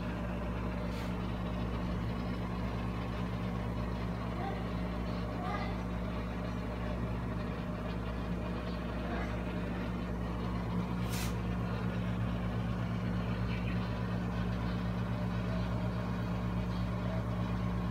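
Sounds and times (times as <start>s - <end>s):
low mechanical hum: 0.0s - 17.9s
brief hiss: 11.0s - 11.4s.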